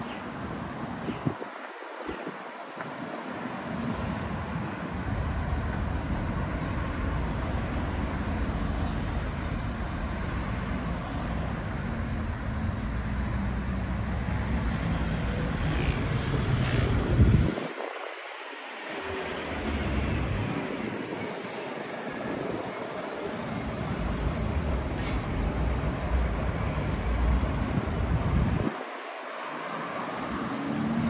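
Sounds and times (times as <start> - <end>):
road traffic rumble: 0.0 - 31.0
wind buffeting microphone: 0.5 - 3.1, 15.7 - 21.3, 27.4 - 29.0.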